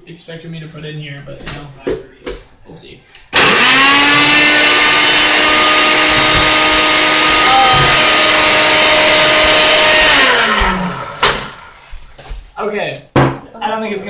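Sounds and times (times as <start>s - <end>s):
blender motor whining: 3.3s - 11.8s.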